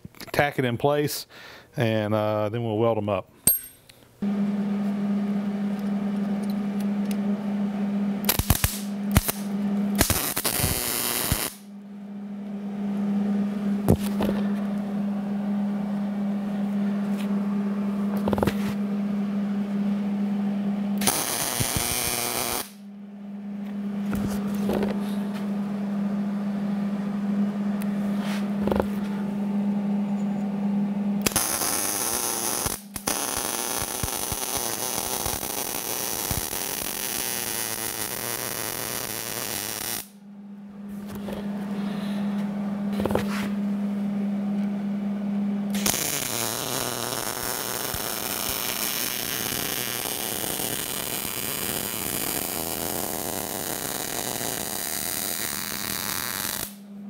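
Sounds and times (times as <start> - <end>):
steady electrical hum: 0.0 - 57.0
welding arc sizzling: 8.2 - 11.7, 21.0 - 22.8, 31.2 - 40.2, 45.7 - 56.8
tack weld crackles: 8.3 - 11.6, 31.3 - 40.0, 45.8 - 56.8.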